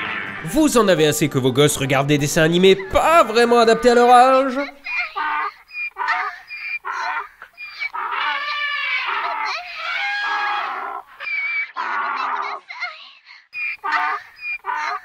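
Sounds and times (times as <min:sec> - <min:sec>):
high-pitched cartoon vocal calls: 0:02.8 - 0:12.9, 0:13.6 - 0:15.0.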